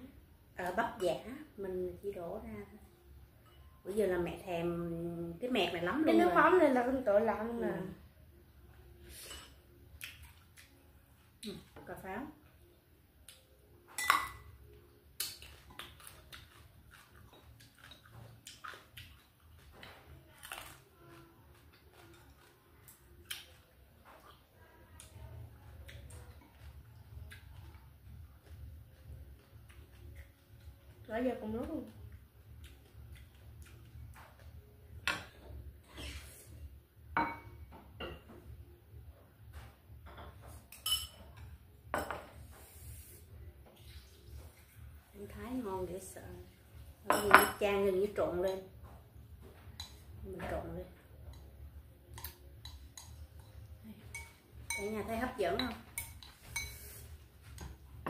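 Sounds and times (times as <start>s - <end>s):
chewing and mouth noises: 10.0s - 11.5s, 15.2s - 31.0s, 32.0s - 34.6s
chopsticks tapping porcelain bowls: 52.2s - 56.8s.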